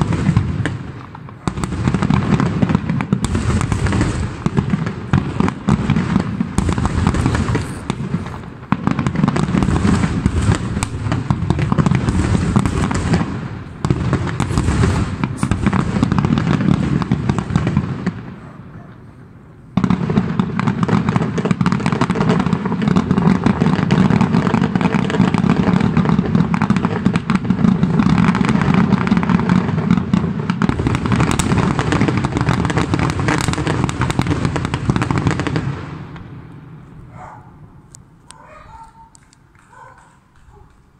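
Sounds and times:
fireworks bangs and crackling: 0:00.0 - 0:40.9.

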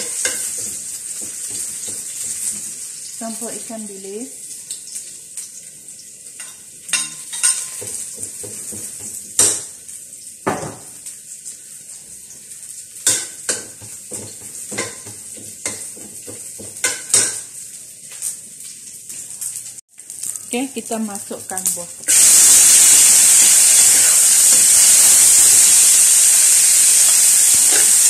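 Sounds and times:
food sizzling in oil: 0:00.0 - 0:28.0
metal spatula scraping wok: 0:27.6 - 0:28.0.

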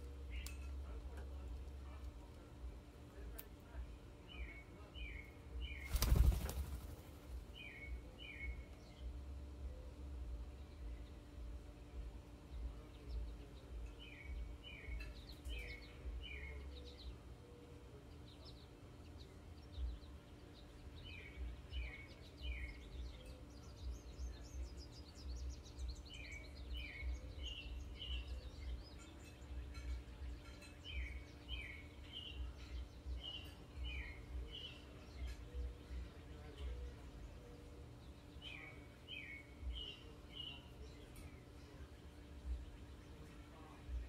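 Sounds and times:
songbird singing: 0:00.0 - 0:44.0
low background rumble: 0:06.5 - 0:15.3.

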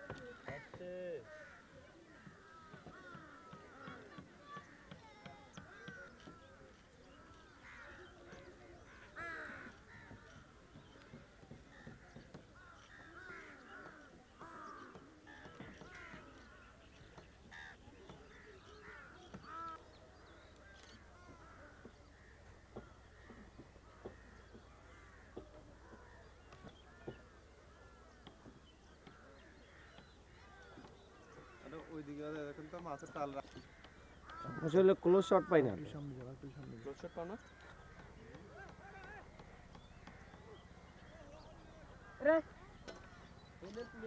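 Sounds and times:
gulls calling: 0:00.0 - 0:44.0.

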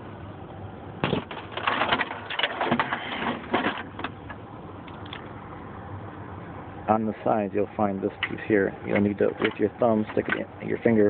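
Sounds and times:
plastic parts knocking and rattling: 0:01.0 - 0:04.1.

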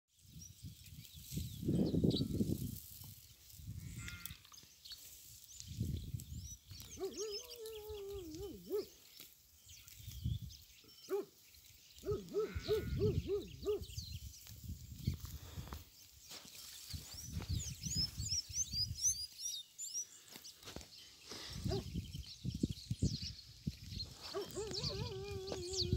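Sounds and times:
sheep bleating: 0:03.8 - 0:04.4, 0:12.3 - 0:13.1.

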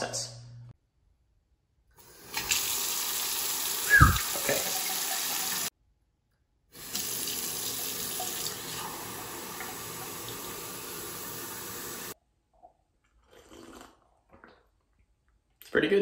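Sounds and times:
faucet running into sink: 0:02.1 - 0:05.7, 0:06.8 - 0:12.2.

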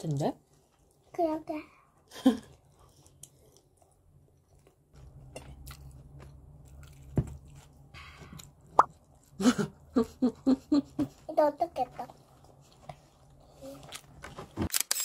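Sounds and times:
child chewing bread: 0:02.0 - 0:09.9, 0:11.0 - 0:14.4.

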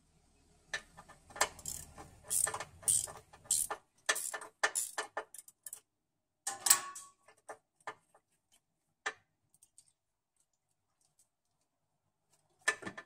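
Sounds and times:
ratchet clicking: 0:01.3 - 0:05.8.

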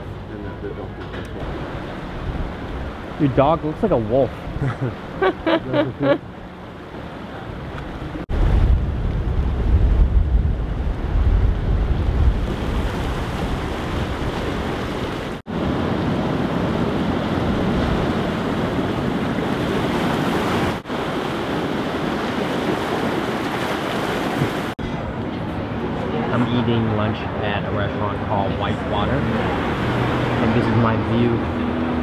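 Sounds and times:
ocean surf washing on beach: 0:01.4 - 0:25.2
wind buffeting microphone: 0:07.6 - 0:25.2.

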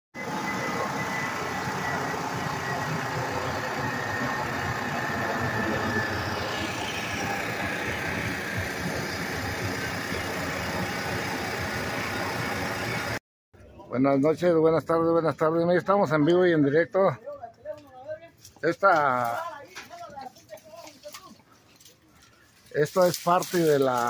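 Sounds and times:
jet airliner flying overhead: 0:00.2 - 0:13.2.

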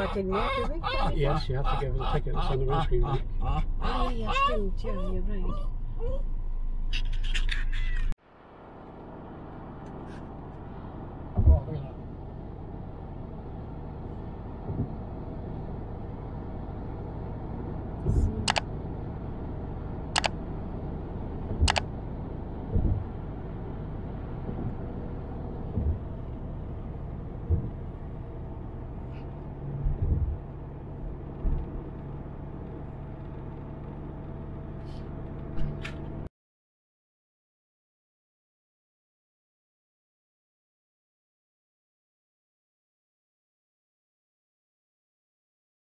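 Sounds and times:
car road and engine noise: 0:00.0 - 0:36.3
sharp clicks: 0:18.5 - 0:18.7, 0:20.2 - 0:20.4, 0:21.6 - 0:21.9
low thumps: 0:22.6 - 0:23.2, 0:25.6 - 0:28.1, 0:29.8 - 0:30.5.

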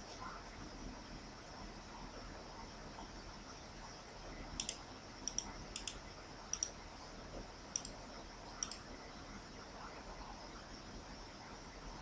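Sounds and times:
faint steady hiss: 0:00.0 - 0:12.0
computer mouse clicks: 0:04.5 - 0:06.8, 0:07.7 - 0:08.0, 0:08.6 - 0:08.9.

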